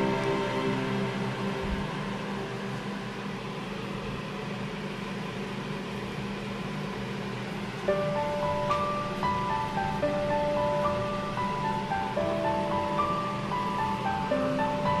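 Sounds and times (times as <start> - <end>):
music with mallet notes: 0.0 - 2.9
machine hum with hiss: 0.0 - 15.0.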